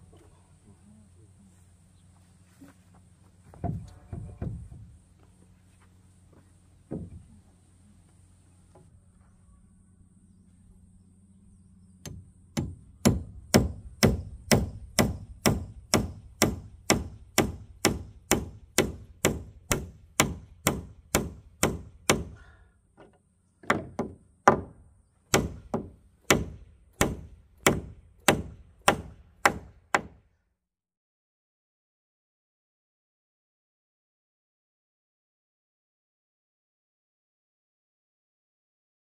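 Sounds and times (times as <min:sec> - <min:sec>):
hand tool striking wood: 0:12.0 - 0:22.4, 0:23.0 - 0:30.2.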